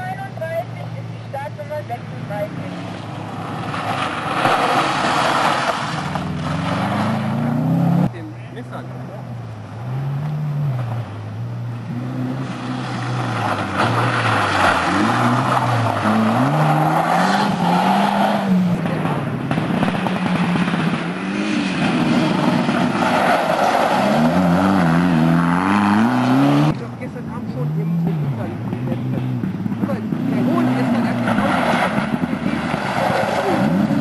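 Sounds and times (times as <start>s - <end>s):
rally car engine revving: 1.0s - 34.0s
water spray and tyre noise: 2.8s - 7.6s, 11.9s - 26.8s, 30.4s - 34.0s.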